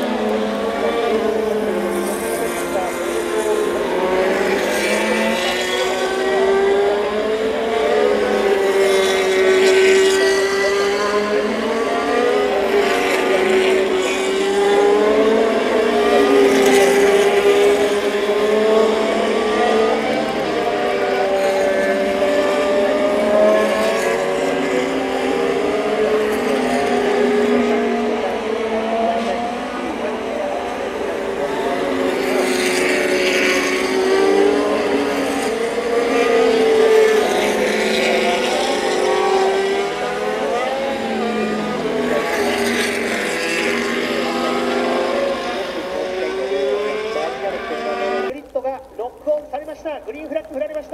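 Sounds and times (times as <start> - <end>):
racing car engines rising and falling: 0.0 - 48.4.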